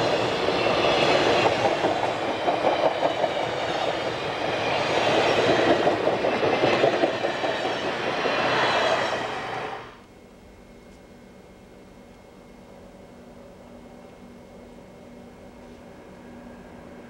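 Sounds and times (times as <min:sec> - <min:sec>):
steady train rumble: 0:00.0 - 0:17.0
train wheels clicking over rail joints: 0:00.1 - 0:09.0.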